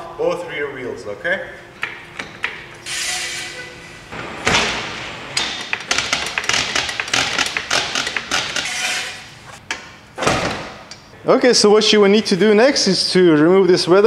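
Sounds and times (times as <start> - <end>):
floor jack clicks and knocks: 4.2 - 8.7.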